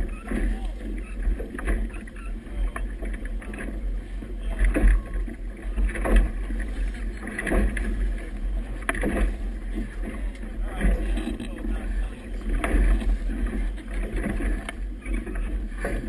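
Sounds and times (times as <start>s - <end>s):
water splashing against hull: 0.0s - 16.0s
wind rumbling on microphone: 0.0s - 16.0s.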